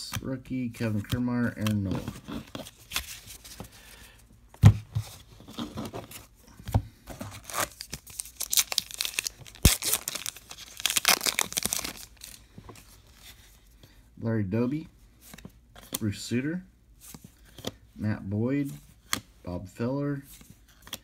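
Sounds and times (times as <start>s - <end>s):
paper wrapper tearing: 7.4s - 12.4s
wrapper crinkling: 7.4s - 12.4s.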